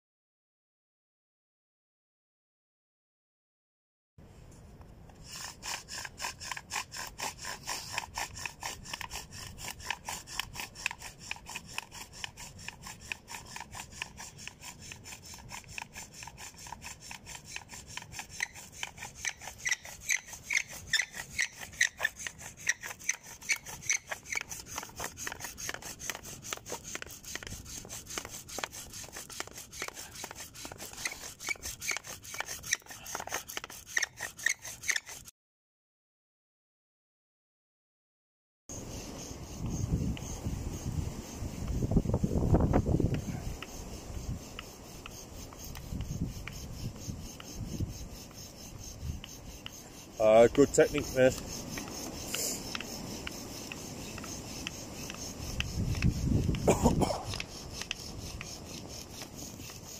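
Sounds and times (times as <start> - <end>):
bow drill squeaking on wood: 5.1 - 35.3, 38.7 - 59.9.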